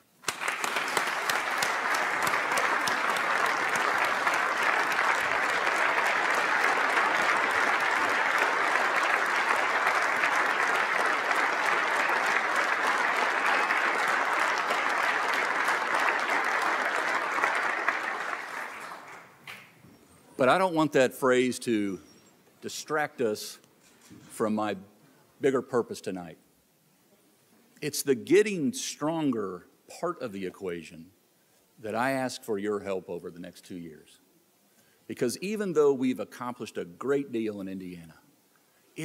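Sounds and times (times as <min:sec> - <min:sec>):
large crowd applause: 0:00.2 - 0:19.4.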